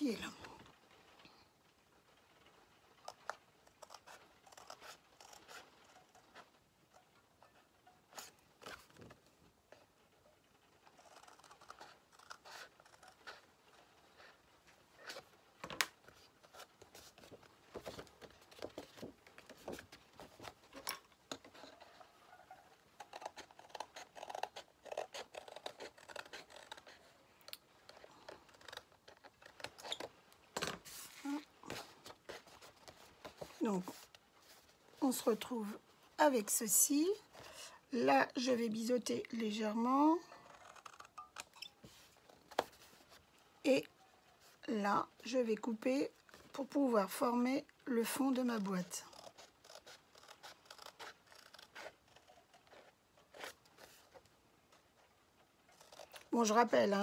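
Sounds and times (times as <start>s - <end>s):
faint paper rustling: 0.0s - 36.2s, 37.0s - 57.0s
scissors snipping paper: 10.9s - 13.5s, 23.0s - 27.1s, 48.5s - 54.1s, 55.7s - 57.0s.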